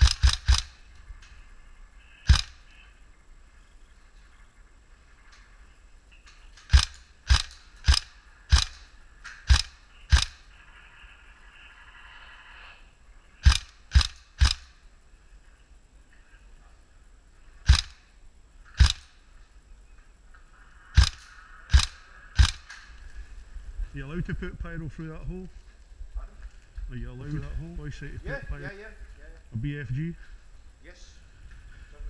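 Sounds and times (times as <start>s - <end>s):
airsoft gun shots: 0.0s - 0.8s, 2.3s - 2.6s, 6.6s - 10.5s, 13.4s - 14.8s, 17.6s - 18.0s, 18.7s - 19.2s, 21.0s - 22.8s.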